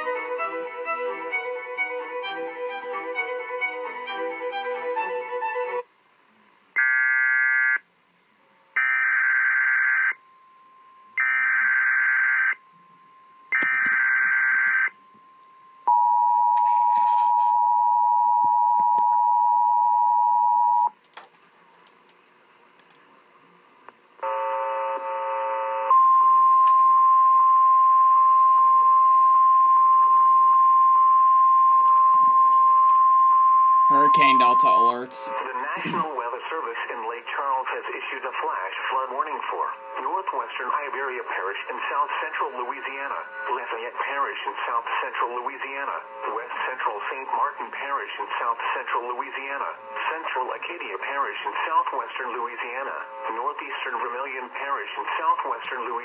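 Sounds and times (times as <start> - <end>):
two-tone attention signal: 25.6 - 35.4
steady high alert tone: 26.0 - 36.0.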